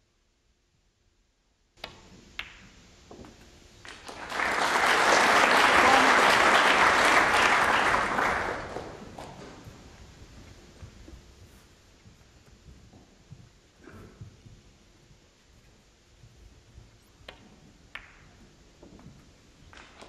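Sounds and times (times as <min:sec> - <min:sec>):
snooker ball clicks: 0:01.8 - 0:03.5, 0:17.2 - 0:18.5
audience applause: 0:03.8 - 0:09.8.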